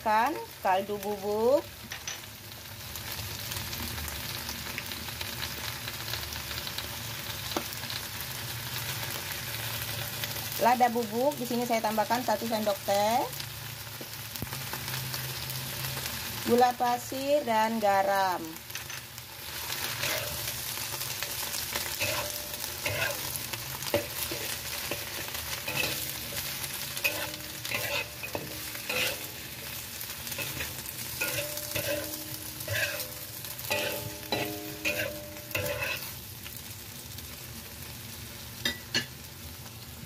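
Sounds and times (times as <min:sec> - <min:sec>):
steady sizzle: 0:00.0 - 0:40.0
metal spatula scraping a wok: 0:18.7 - 0:36.2.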